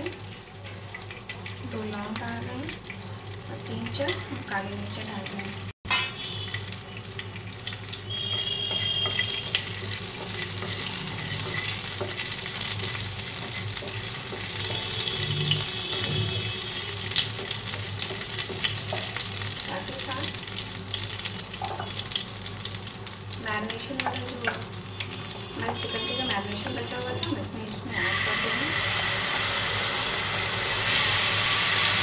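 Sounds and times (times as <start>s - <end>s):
spices sizzling in hot oil: 0.0s - 32.0s
spoon stirring in pan: 7.2s - 19.5s.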